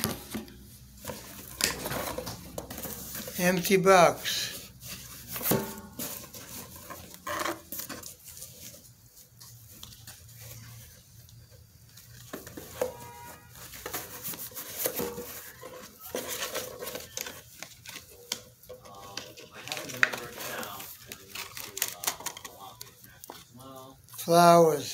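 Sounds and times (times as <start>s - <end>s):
cardboard box rustling: 4.5s - 11.1s, 11.9s - 18.4s.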